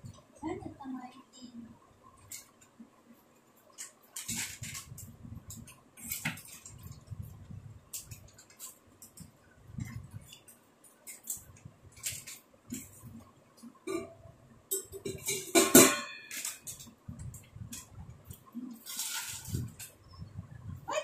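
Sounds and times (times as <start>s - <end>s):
steel bowls clinking: 13.9s - 17.0s.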